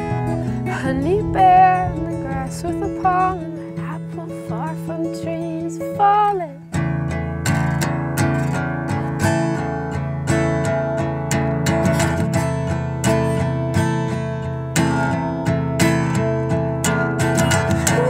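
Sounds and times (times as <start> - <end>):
strummed acoustic guitar: 0.0 - 18.0.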